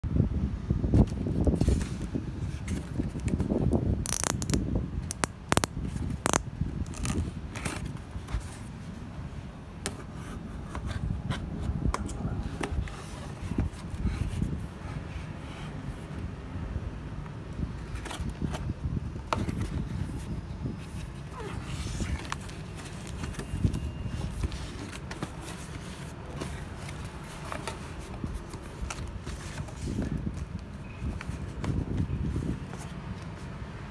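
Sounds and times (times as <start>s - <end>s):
sharp clicks and scrapes: 4.0s - 7.8s
scratching at packing tape: 4.0s - 7.9s
hands handling cardboard box: 17.9s - 33.5s.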